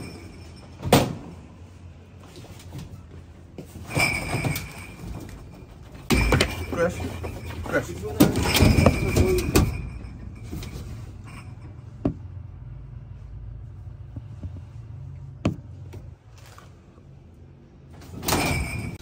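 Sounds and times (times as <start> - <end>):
fridge shelves clattering: 3.6 - 12.2, 18.0 - 19.0.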